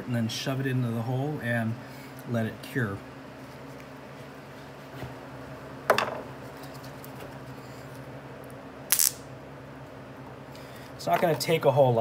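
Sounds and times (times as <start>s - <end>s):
steady low hum: 0.0s - 12.0s
short scratchy hiss: 8.9s - 9.2s.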